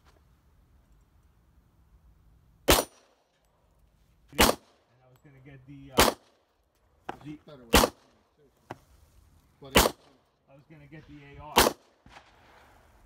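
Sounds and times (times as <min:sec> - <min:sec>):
pistol shots: 0:02.6 - 0:03.1, 0:04.4 - 0:04.8, 0:05.9 - 0:06.4, 0:07.7 - 0:08.2, 0:09.7 - 0:10.1, 0:11.5 - 0:12.2.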